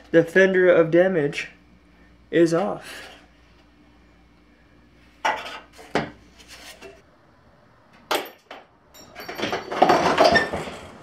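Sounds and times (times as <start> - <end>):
car body parts clattering: 8.0 - 11.0.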